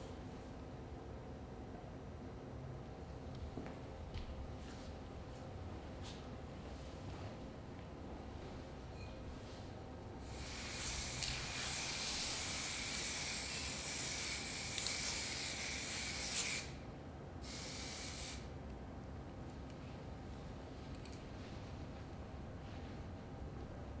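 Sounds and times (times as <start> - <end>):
spray can hissing: 10.2 - 16.7, 17.4 - 18.5.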